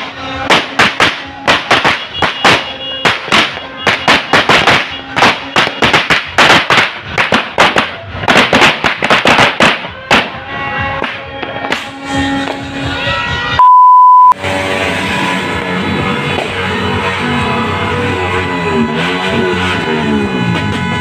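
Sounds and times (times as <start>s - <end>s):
firecrackers exploding: 0.0s - 12.8s
music playing: 9.8s - 13.6s, 14.3s - 21.0s.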